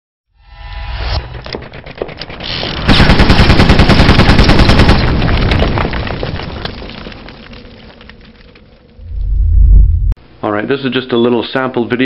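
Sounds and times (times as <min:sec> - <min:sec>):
automatic gunfire: 0:02.6 - 0:05.2.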